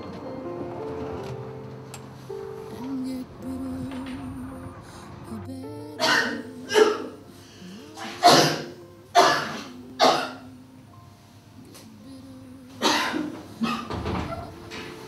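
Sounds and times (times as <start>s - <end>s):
woman coughing harshly: 6.0s - 7.2s, 8.0s - 10.5s, 12.8s - 14.0s.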